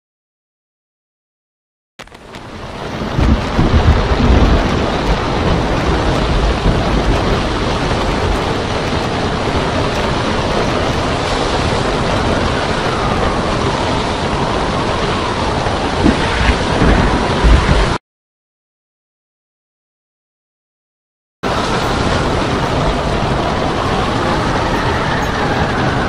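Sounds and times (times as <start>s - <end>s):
breaking surf: 2.0s - 18.0s, 21.4s - 26.0s
wind roaring: 2.0s - 18.0s, 21.4s - 26.0s
heavy low rumble: 2.1s - 18.0s, 21.4s - 26.0s.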